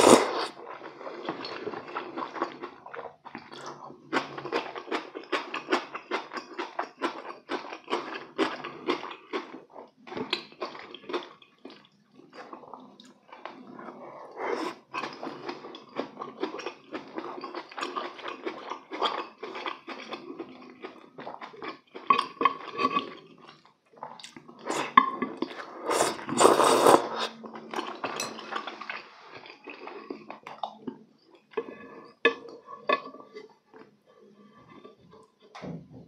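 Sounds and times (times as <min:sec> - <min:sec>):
slurping: 0:00.0 - 0:04.8, 0:11.7 - 0:35.4.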